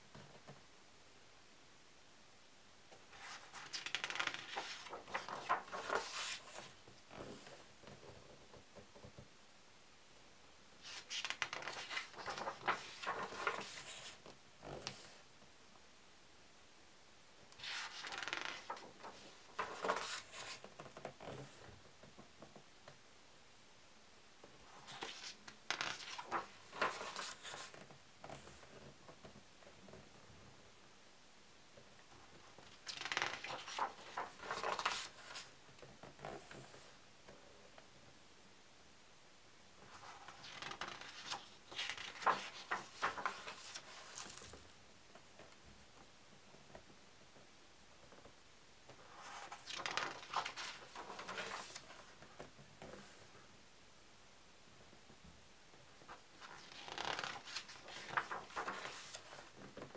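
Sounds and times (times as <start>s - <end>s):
book pages turning: 3.1s - 7.6s, 10.8s - 15.1s, 17.6s - 21.0s, 24.8s - 28.5s, 32.6s - 35.5s, 39.9s - 44.8s, 49.0s - 52.4s, 56.1s - 59.9s.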